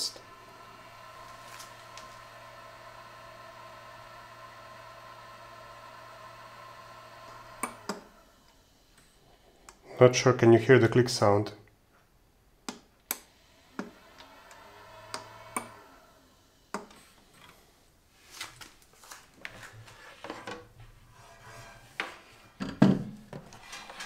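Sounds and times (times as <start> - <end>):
faint fan whir: 0.0 - 10.8.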